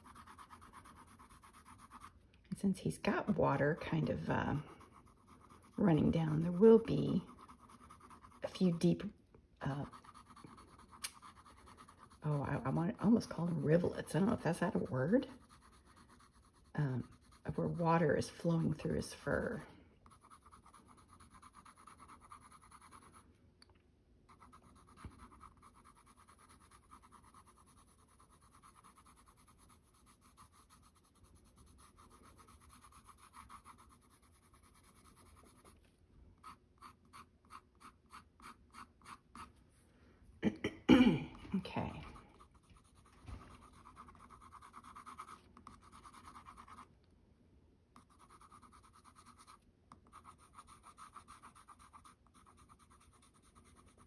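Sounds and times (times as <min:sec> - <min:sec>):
colored pencil scratching paper: 0:00.0 - 0:02.2, 0:02.8 - 0:23.3, 0:24.3 - 0:39.8, 0:41.4 - 0:46.9, 0:48.0 - 0:54.0
throat noise: 0:40.4 - 0:42.2.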